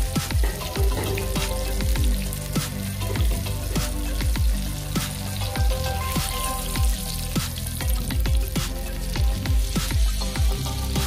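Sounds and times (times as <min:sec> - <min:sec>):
background music with beat: 0:00.0 - 0:11.0
eggplants sizzling in oil: 0:00.0 - 0:11.0.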